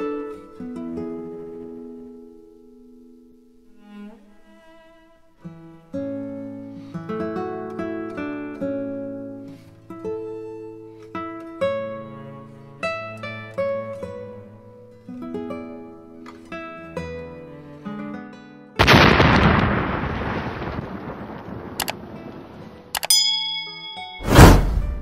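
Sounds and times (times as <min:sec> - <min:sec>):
plucked string instrument music: 0:00.0 - 0:19.6.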